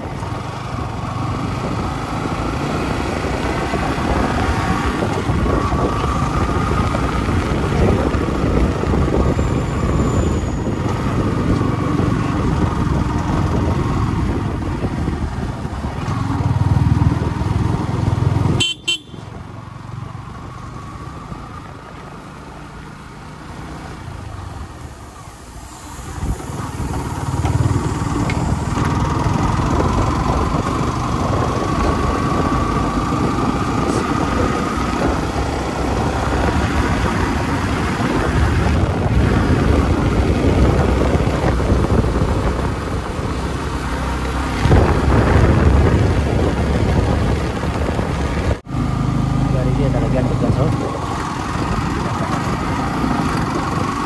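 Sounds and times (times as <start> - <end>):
motorcycle engine: 0.0 - 54.0
vehicle horn honking: 18.6 - 19.3.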